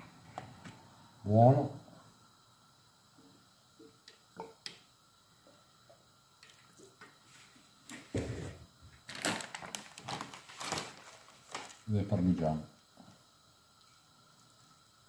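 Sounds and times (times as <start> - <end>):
faint clicks and drips: 3.2 - 7.2, 13.0 - 14.8
can set down knock: 7.9 - 8.6.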